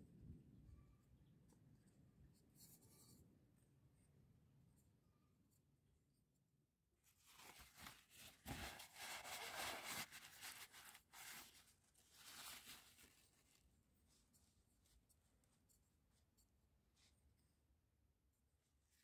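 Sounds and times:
paper towel and cloth rustling: 0:07.0 - 0:15.6.

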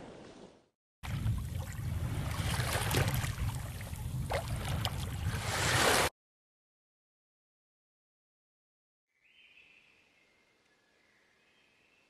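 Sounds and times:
sea water splashing and lapping: 0:01.0 - 0:06.1.

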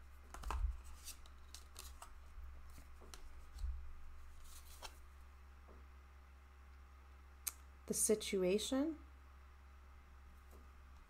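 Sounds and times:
cards clicking and sliding: 0:00.3 - 0:03.6, 0:04.4 - 0:05.0.

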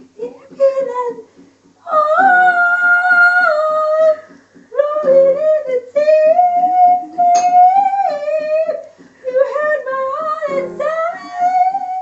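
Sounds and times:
woman singing long held notes: 0:01.8 - 0:12.0
guitar strumming: 0:10.4 - 0:11.2.

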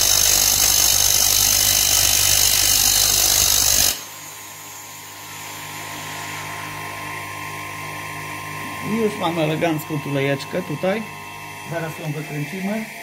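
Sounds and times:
metal grinding on grinder wheel: 0:00.0 - 0:04.1, 0:08.6 - 0:13.0
bench grinder motor hum: 0:00.0 - 0:13.0.

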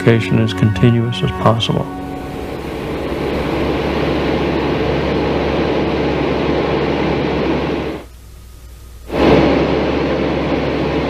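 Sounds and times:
propeller aircraft drone: 0:01.9 - 0:08.1, 0:09.2 - 0:11.0.

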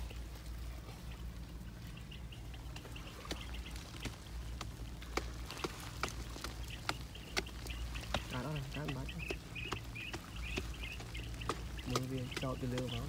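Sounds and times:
steady low rumble: 0:00.0 - 0:13.0
hand tool knocking and scraping earth: 0:03.3 - 0:13.0.

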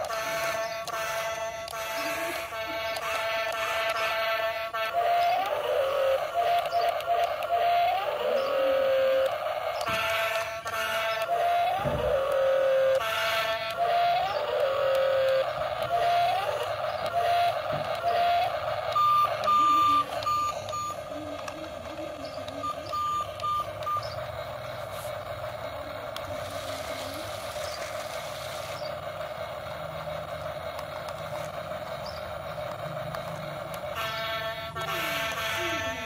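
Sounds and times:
toy excavator electric whir: 0:00.0 - 0:36.0
short electronic beeps: 0:17.2 - 0:21.1, 0:22.4 - 0:24.3.

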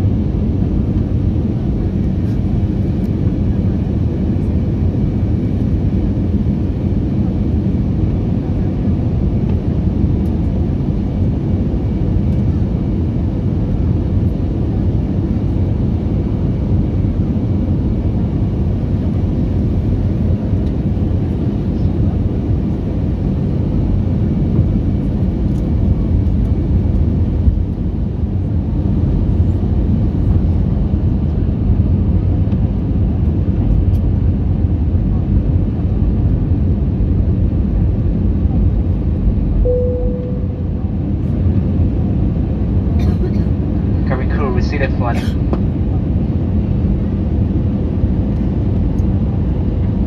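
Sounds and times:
jet engines roaring: 0:43.0 - 0:46.2.

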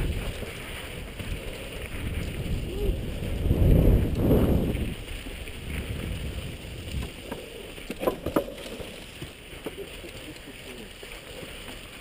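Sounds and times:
wind buffeting microphone: 0:00.0 - 0:08.3
bike rumbling over dirt trail: 0:00.0 - 0:12.0.

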